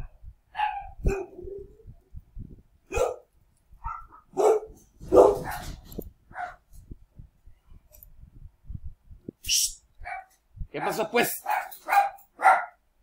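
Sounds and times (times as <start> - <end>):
dogs barking: 0.5 - 1.7, 2.9 - 6.6, 10.0 - 12.8.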